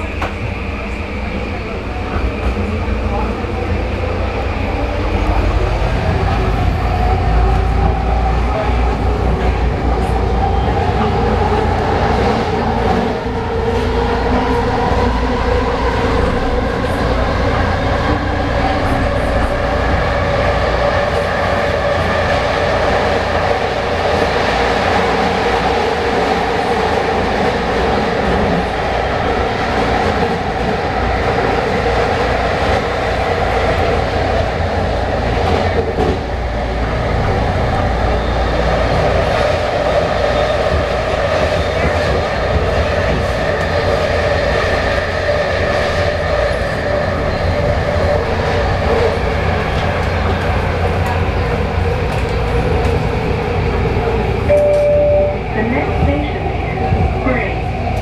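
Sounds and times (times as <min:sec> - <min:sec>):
train wheels on rails: 0:00.0 - 0:58.0
clickety-clack of rail joints: 0:35.3 - 0:36.3, 0:38.9 - 0:46.8, 0:48.5 - 0:55.0.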